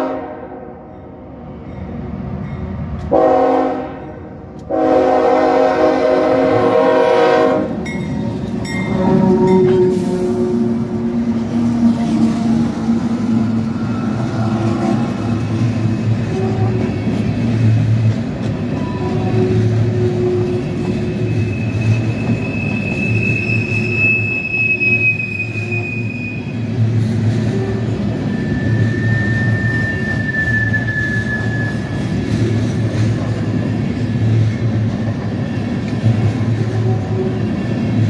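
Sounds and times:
freight train rolling on rails: 0.0s - 38.0s
train wheels squealing: 18.7s - 34.7s.

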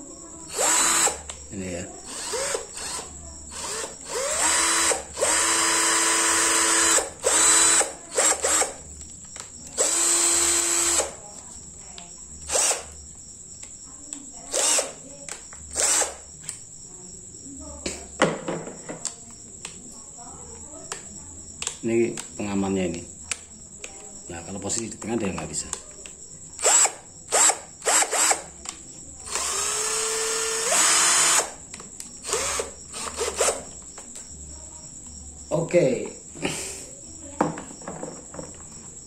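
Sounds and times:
cordless drill running in bursts: 0.5s - 1.2s, 2.0s - 8.8s, 9.7s - 11.2s, 12.5s - 12.9s, 14.5s - 15.0s, 15.7s - 16.2s, 26.6s - 28.5s, 29.3s - 31.6s, 32.2s - 33.7s.

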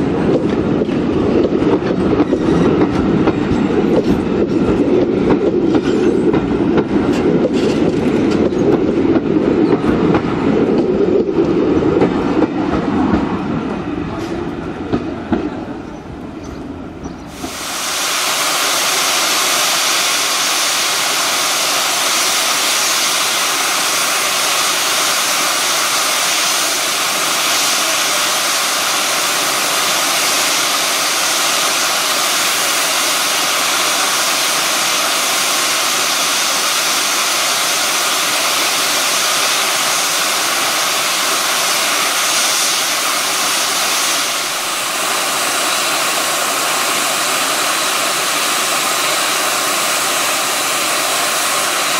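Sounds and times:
steam locomotive blowing off steam: 17.2s - 51.9s.

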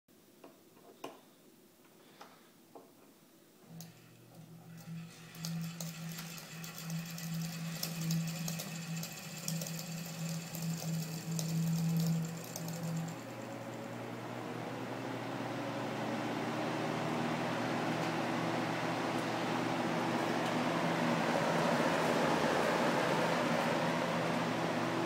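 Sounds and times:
fan motor humming: 3.6s - 25.0s
fast rattling tick: 5.3s - 13.4s.

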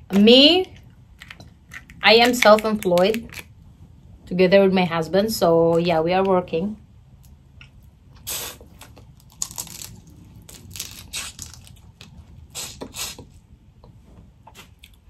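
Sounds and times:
shells crackling and tearing: 1.2s - 3.5s, 8.8s - 12.2s
wet sucking sounds: 8.2s - 9.1s, 10.9s - 11.6s, 12.5s - 13.4s.

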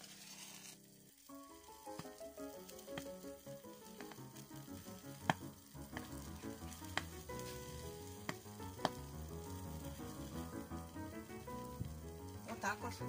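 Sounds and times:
foil fizzing in solution: 0.0s - 13.0s
background music: 1.2s - 13.0s
sharp little pops: 1.9s - 12.0s.

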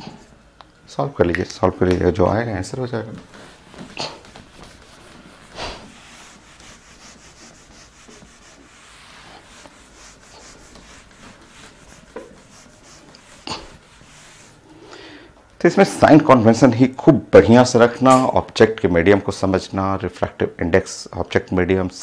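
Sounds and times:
eraser rubbing on whiteboard: 3.2s - 14.7s.

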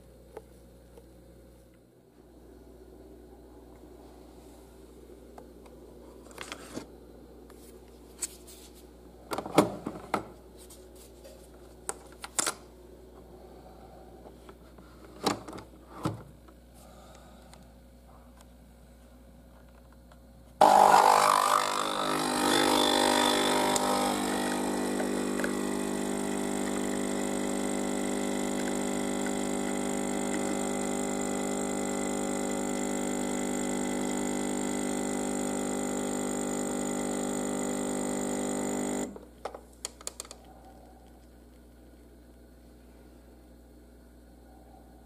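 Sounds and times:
coffee machine sputtering: 20.6s - 39.2s
coffee machine pump buzzing: 20.6s - 39.4s.

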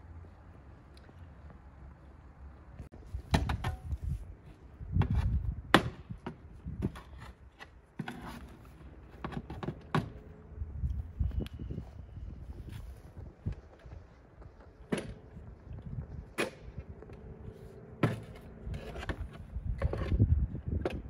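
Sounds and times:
steady low rumble: 10.1s - 21.0s.

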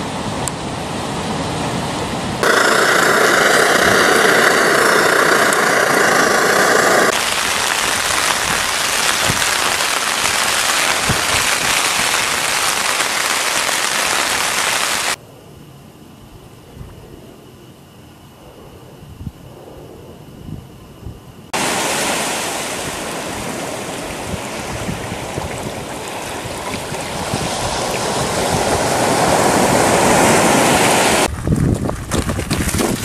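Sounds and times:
waves breaking on rocks: 2.7s - 15.2s, 21.6s - 31.3s
rain falling on a tent: 7.1s - 15.2s
single raindrops: 7.1s - 15.2s.

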